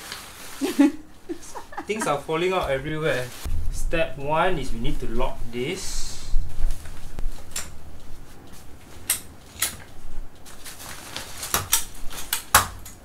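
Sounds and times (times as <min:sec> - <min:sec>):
fabric rustling: 0:00.0 - 0:12.3.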